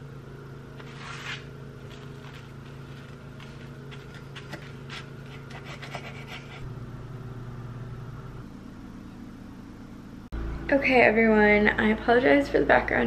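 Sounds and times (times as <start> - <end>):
steady droning hum: 0.0 - 13.0
knife crunching through tortilla: 0.8 - 6.6.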